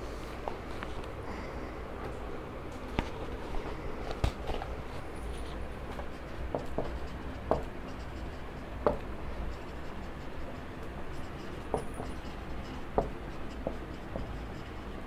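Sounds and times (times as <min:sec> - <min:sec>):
low steady hum: 0:00.0 - 0:15.0
marker writing on whiteboard: 0:05.0 - 0:15.0.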